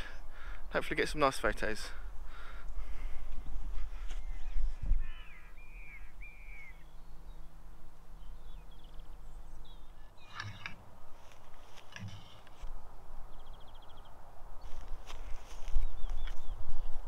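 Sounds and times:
wind rumble on microphone: 2.8 - 9.9, 10.9 - 17.0
harsh crow-like bird calls: 4.0 - 6.9
tripod clatter: 10.2 - 12.7.

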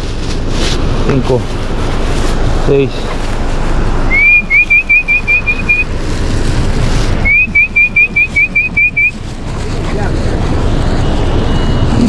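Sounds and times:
person whistling to call dog: 4.1 - 5.8, 7.2 - 9.1.

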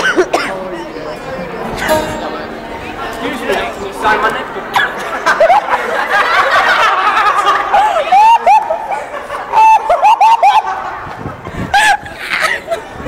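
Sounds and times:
voices chattering: 0.0 - 13.0
high-pitched laughter: 4.8 - 13.0.

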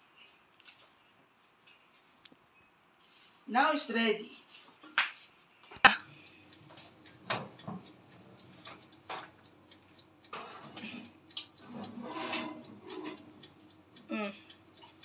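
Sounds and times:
metal pan scraping on rack: 10.4 - 11.0, 11.6 - 13.4.

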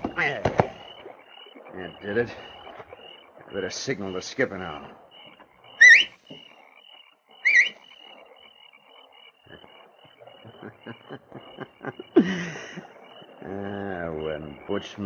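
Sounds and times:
frog chorus chirping: 0.0 - 15.0
man whistling: 5.8 - 6.1, 7.4 - 7.8.

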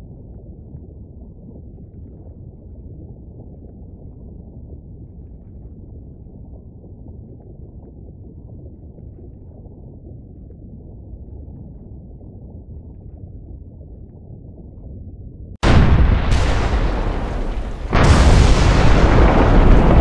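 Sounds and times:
deep rumbling: 15.6 - 20.0
faint crackles: 15.6 - 20.0.

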